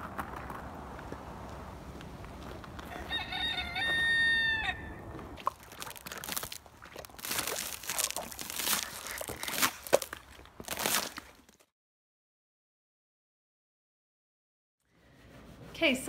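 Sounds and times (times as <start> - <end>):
footsteps crunching on icy snow: 0.0 - 4.3, 5.0 - 11.7
rooster crowing: 2.8 - 5.1.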